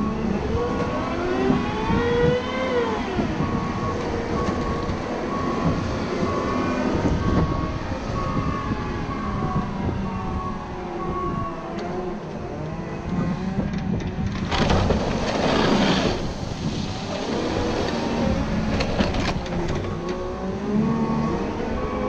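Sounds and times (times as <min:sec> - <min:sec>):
plow blade pushing wet snow: 0:00.0 - 0:11.0, 0:14.4 - 0:22.0
diesel engine running: 0:00.0 - 0:22.0
reverse alarm beeping: 0:03.4 - 0:11.6.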